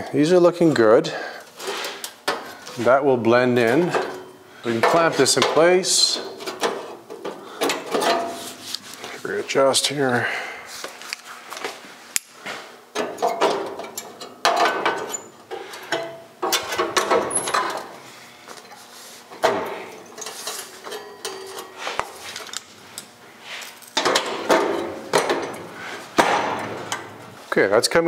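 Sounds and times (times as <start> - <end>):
metal clanks and scrapes: 3.6 - 9.2, 12.5 - 17.9, 18.6 - 27.2.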